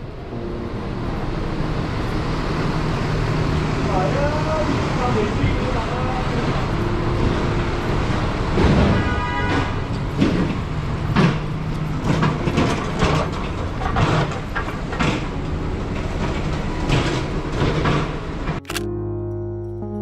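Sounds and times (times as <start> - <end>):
traffic on a wet road: 1.0 - 18.6.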